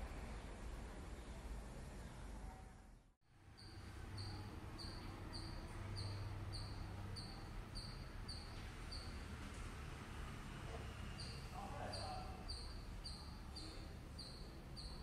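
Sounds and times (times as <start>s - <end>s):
small animal chirping: 3.6s - 9.2s, 11.2s - 15.0s.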